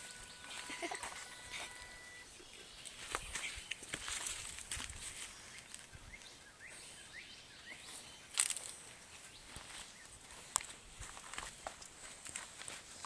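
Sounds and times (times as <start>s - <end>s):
short rising chirps: 0.0s - 2.3s
faint outdoor ambience: 0.0s - 13.0s.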